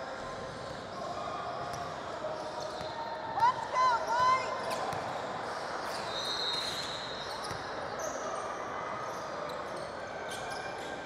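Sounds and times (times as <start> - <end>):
sneaker squeaks: 1.6 - 3.0, 4.6 - 8.5, 9.1 - 11.0.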